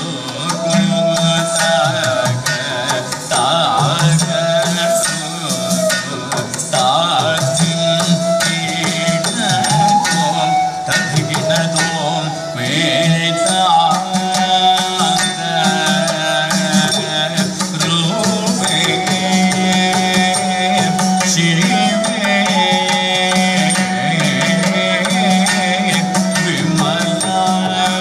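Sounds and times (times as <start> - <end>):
rhythmic drum strokes: 0.0 - 28.0.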